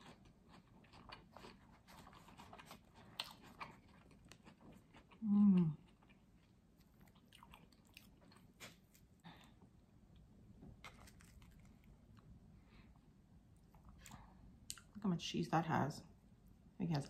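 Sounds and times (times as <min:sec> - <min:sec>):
person chewing food: 0:00.0 - 0:15.0.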